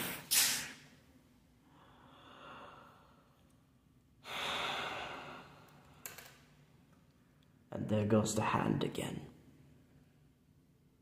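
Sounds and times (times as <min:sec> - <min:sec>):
person exhaling heavily: 0:01.7 - 0:03.2, 0:04.2 - 0:05.7.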